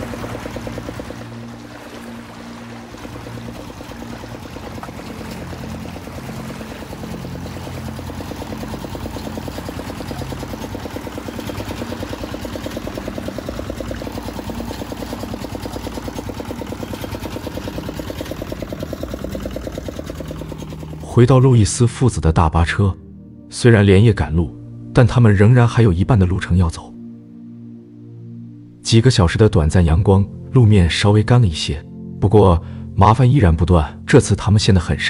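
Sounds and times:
water churning around wheels: 0:00.0 - 0:21.8
tractor diesel engine pulsing: 0:00.0 - 0:21.9.

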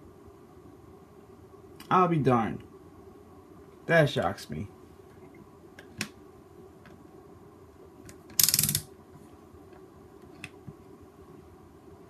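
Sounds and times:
rotary switch clicking rapidly: 0:08.3 - 0:08.9.

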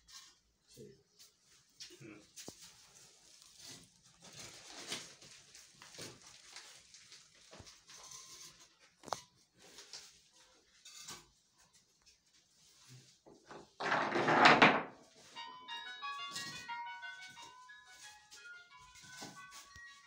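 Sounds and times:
faint rustling and scraping: 0:00.0 - 0:15.5.

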